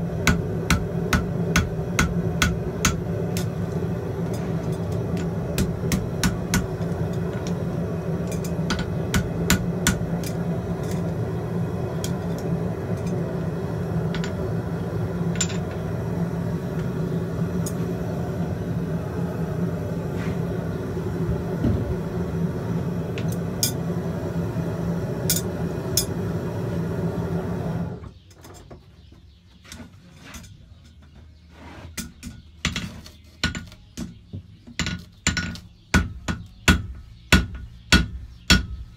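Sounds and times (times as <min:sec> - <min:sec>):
mechanical drone: 0:00.0 - 0:28.2
hammer striking horseshoe on anvil: 0:00.2 - 0:03.6, 0:04.3 - 0:07.6, 0:08.2 - 0:10.4, 0:34.8 - 0:38.8.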